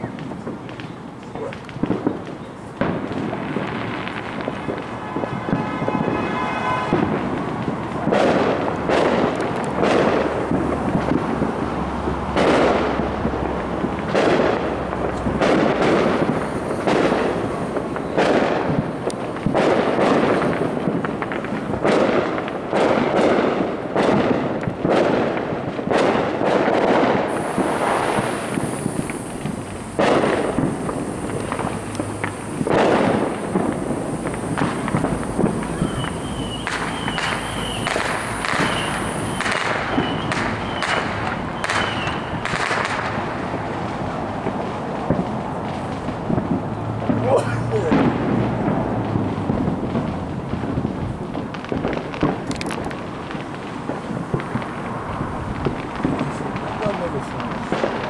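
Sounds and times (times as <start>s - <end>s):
fireworks bangs: 0.0s - 58.0s
fireworks crackling: 0.0s - 58.0s.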